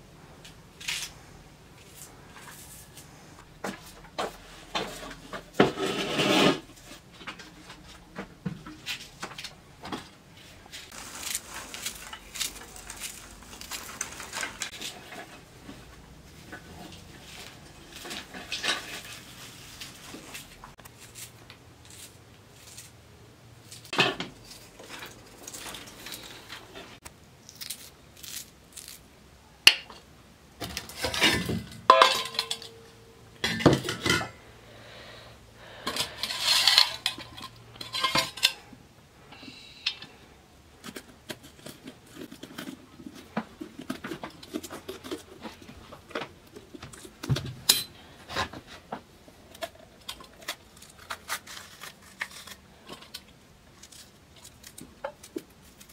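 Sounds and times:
steel bowls and knife clattering: 31.0 - 34.4, 35.9 - 38.7.

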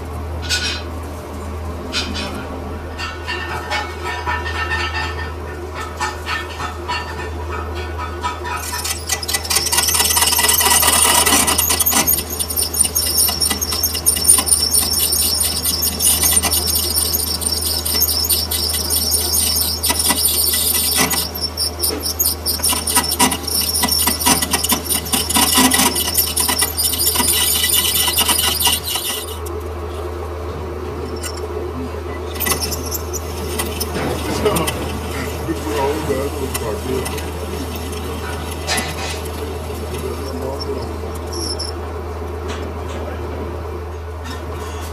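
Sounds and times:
low machine hum: 0.0 - 44.9
lathe tool squealing on steel: 8.0 - 29.5, 32.3 - 41.8.

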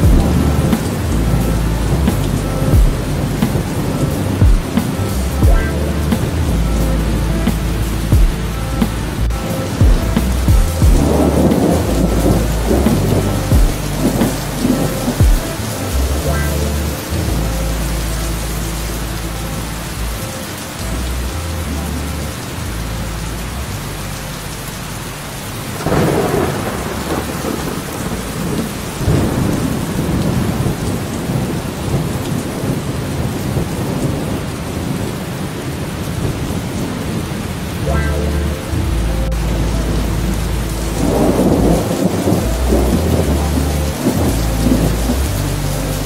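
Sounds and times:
rolling thunder: 0.0 - 16.2, 25.7 - 37.8, 39.4 - 45.4
heavy rain: 0.0 - 46.0.

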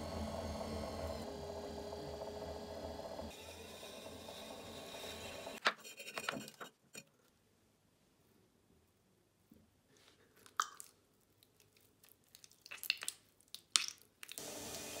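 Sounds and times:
wet clay squelching: 10.2 - 14.4.

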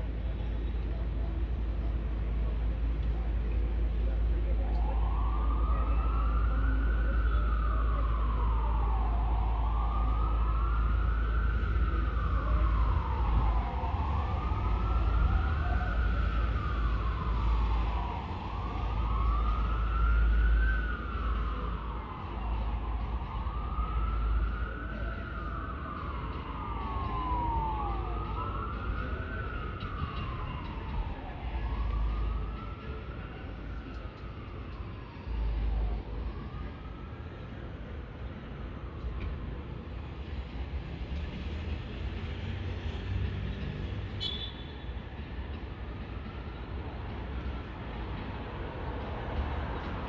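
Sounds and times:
low road rumble: 0.0 - 50.0
siren wailing: 4.6 - 37.4.

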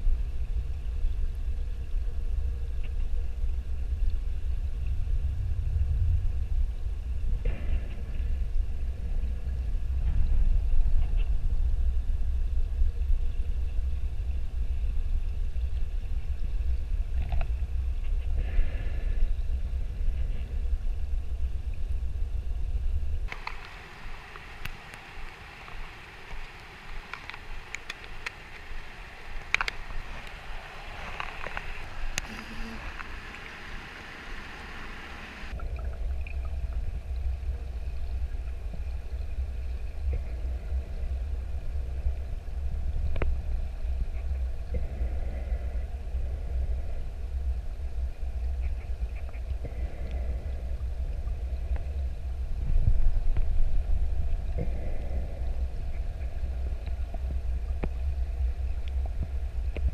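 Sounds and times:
low underwater rumble: 0.0 - 59.9
light hiss: 7.0 - 59.9.

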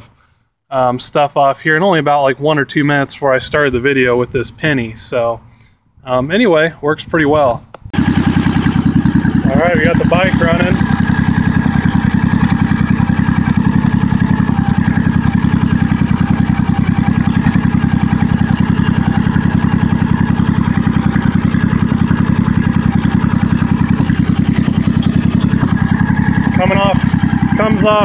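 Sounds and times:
motorcycle engine idling: 8.0 - 28.0.

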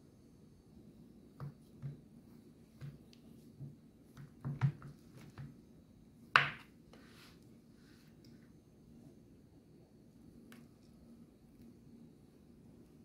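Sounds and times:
knife tapping on wooden board: 6.4 - 6.6.

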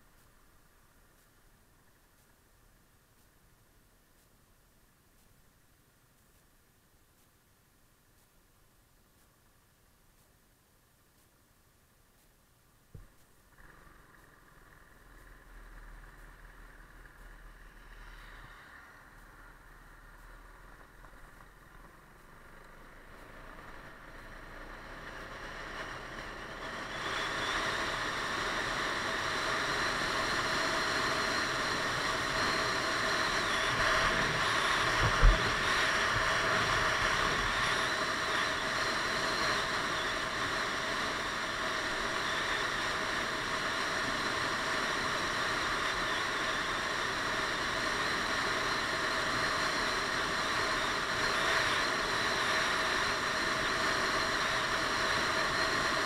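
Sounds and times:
scooter engine: 20.1 - 44.9
wind rush: 27.0 - 47.1.

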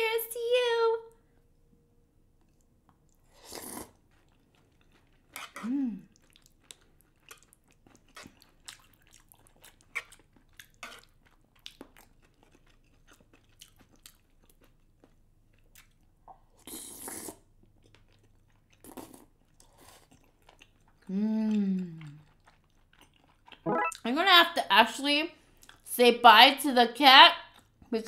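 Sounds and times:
wet chewing clicks and smacks: 6.1 - 16.5, 17.6 - 23.6.

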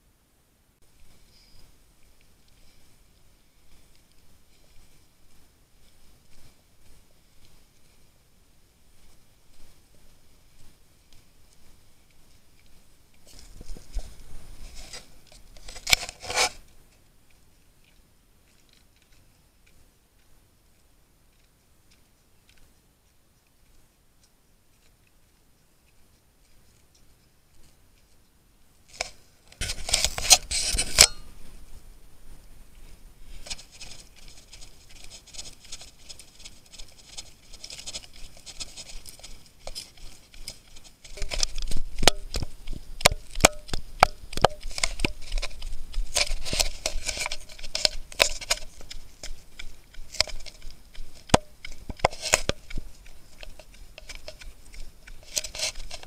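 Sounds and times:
camera handling rubbing and knocks: 13.3 - 16.7, 28.9 - 31.3, 33.3 - 56.0.

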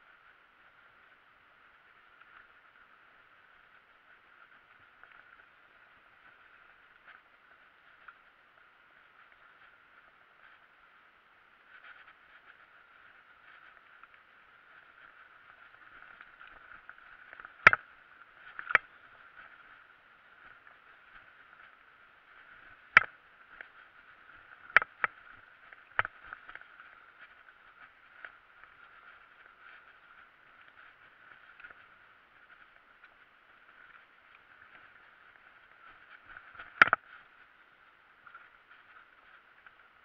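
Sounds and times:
bike knocking and rattling: 35.6 - 37.2.

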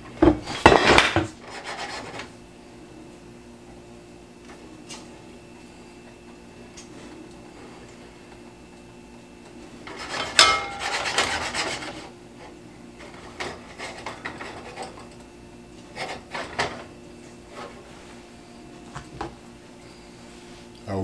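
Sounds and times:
spatula scraping a skillet: 1.4 - 2.2, 9.9 - 12.1, 13.1 - 15.0.

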